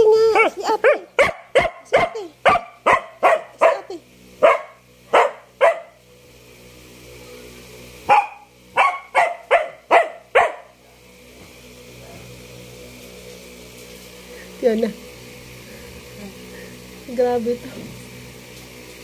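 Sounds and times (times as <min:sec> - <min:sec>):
dog barking: 0:00.3 - 0:06.0, 0:08.1 - 0:10.7.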